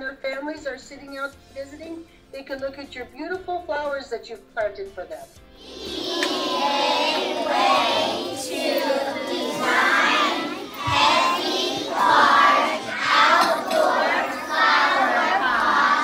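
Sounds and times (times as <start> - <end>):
young children's voices: 5.6 - 16.0.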